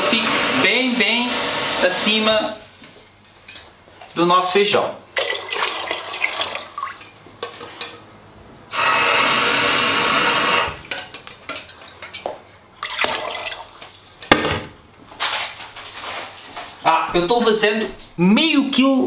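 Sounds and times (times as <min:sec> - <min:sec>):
water pouring into a pot: 0:05.2 - 0:07.6, 0:12.8 - 0:13.8
water splashing: 0:12.8 - 0:13.8.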